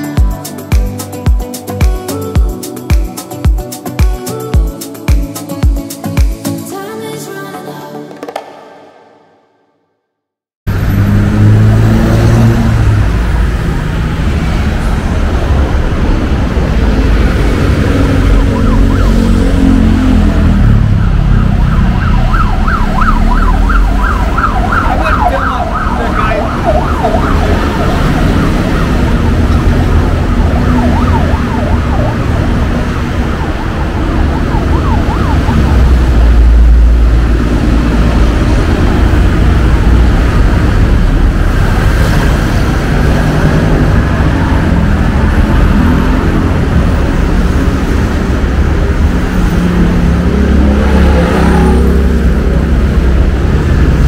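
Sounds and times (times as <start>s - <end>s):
heavy road traffic rumbling: 10.6s - 54.0s
emergency siren yelping: 17.6s - 37.0s.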